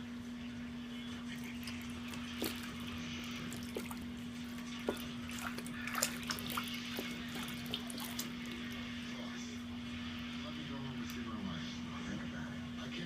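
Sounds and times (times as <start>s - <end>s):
steady low hum: 0.0s - 13.0s
bath water splashing in plastic tub: 1.4s - 8.9s.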